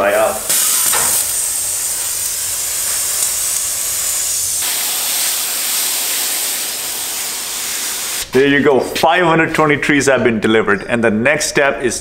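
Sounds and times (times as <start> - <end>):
hose nozzle spraying water: 0.0 - 8.3.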